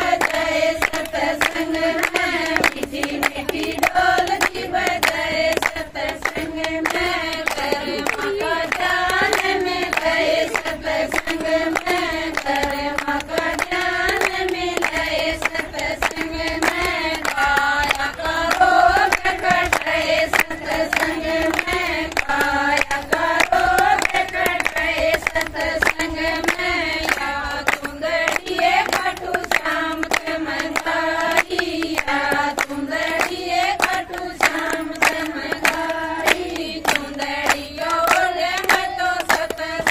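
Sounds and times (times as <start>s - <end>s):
hand-clapping on the beat: 0.0s - 39.9s
women singing folk song together: 0.0s - 39.9s.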